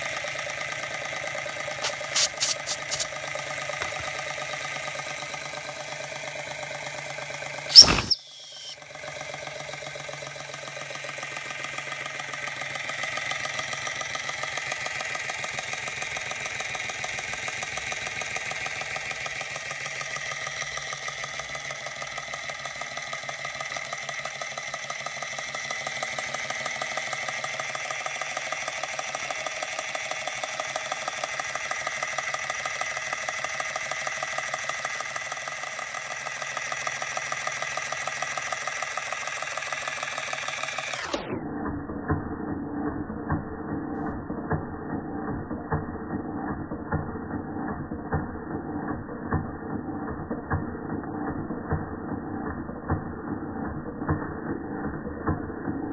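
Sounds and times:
toy steam engine chuffing: 0.0s - 43.2s.

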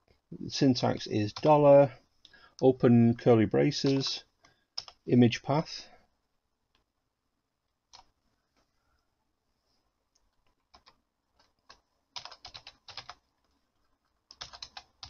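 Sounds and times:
keyboard typing: 1.3s - 1.6s, 3.8s - 4.1s, 4.8s - 5.0s, 10.4s - 13.2s, 14.3s - 15.0s.

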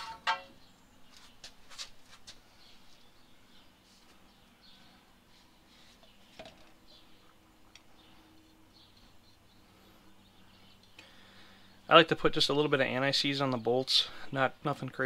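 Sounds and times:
faint high chirps: 6.9s - 11.9s.

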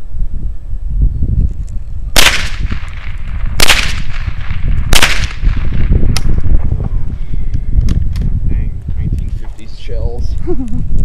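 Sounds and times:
rifle shots: 2.2s - 6.4s.

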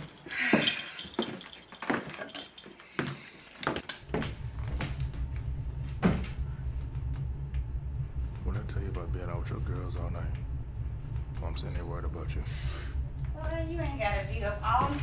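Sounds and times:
footsteps on hard floor: 0.0s - 6.4s, 13.3s - 15.0s
steady low hum: 0.0s - 15.0s.

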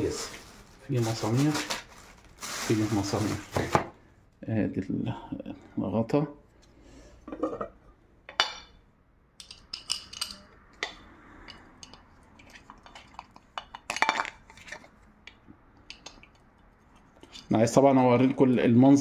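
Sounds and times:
glass lid and cookware clinking: 7.3s - 8.8s, 9.4s - 12.0s, 12.8s - 14.4s.

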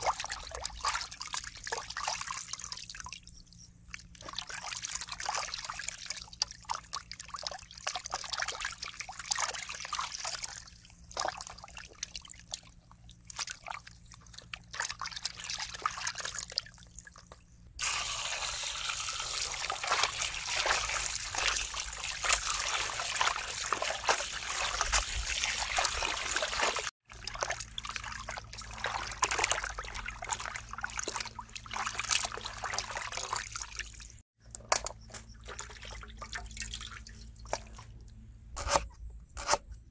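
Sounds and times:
hands sloshing water in basin: 0.0s - 34.2s, 34.8s - 38.1s
water splashes and drips: 0.0s - 38.2s
stream of water pouring: 17.8s - 34.2s.

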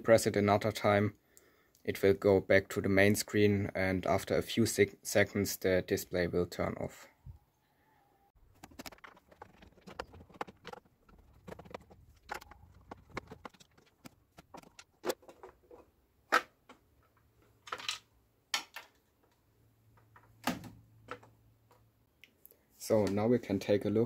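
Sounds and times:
plastic clicks and rattles: 8.5s - 19.4s.

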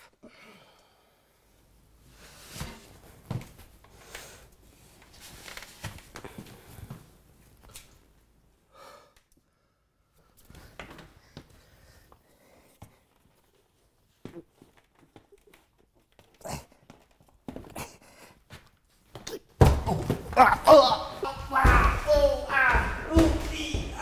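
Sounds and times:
effortful breaths: 0.0s - 7.2s, 8.6s - 14.2s, 16.3s - 19.5s.

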